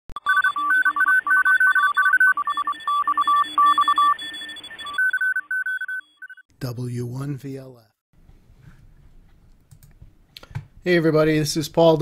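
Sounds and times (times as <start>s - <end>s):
fast electronic beeps: 0.2s - 6.5s.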